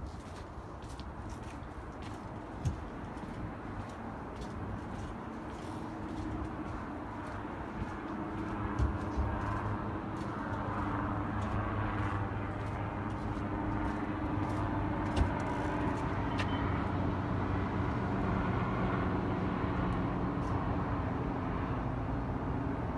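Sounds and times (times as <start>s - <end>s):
distant traffic: 0.0s - 22.9s.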